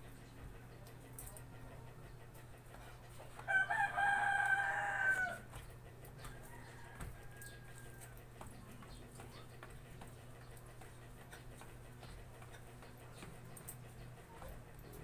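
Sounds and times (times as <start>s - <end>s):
rooster crowing: 3.5s - 5.5s, 6.4s - 8.2s.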